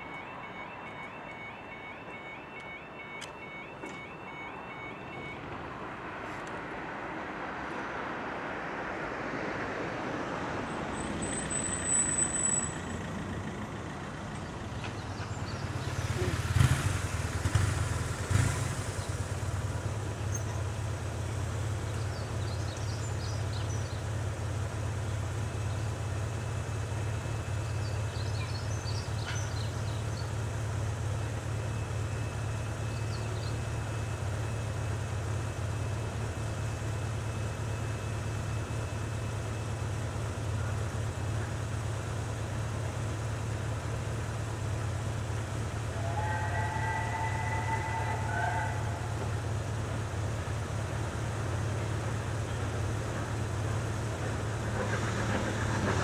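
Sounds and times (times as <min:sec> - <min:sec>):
vehicle passing: 0:15.7 - 0:19.6.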